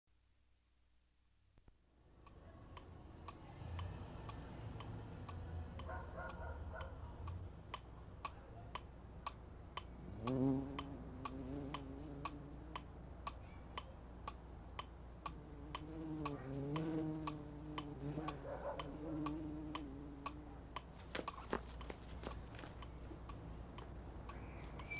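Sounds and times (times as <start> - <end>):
wall clock ticking: 2.2 - 24.9
fly buzzing: 10.0 - 12.9, 15.2 - 21.6.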